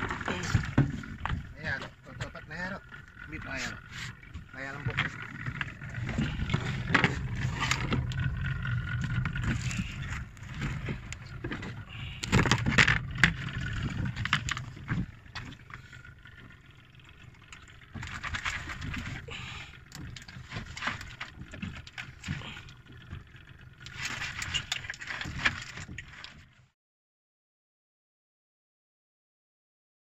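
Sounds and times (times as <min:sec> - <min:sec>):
low rumble: 0:00.0 - 0:23.8.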